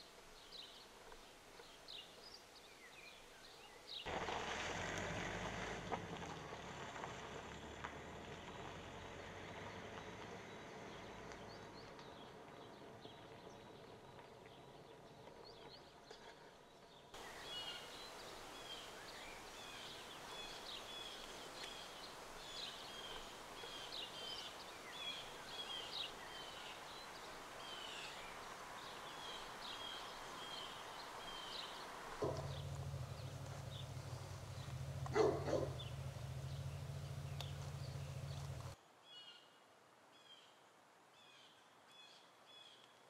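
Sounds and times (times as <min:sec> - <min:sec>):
small birds chirping: 0:08.4 - 0:39.3
steady hiss: 0:17.2 - 0:35.0.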